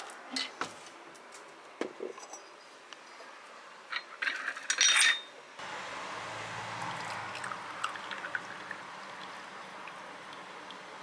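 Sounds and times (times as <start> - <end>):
glassware clinking on shelf: 4.3 - 5.3
tea pouring into glass: 7.0 - 10.8.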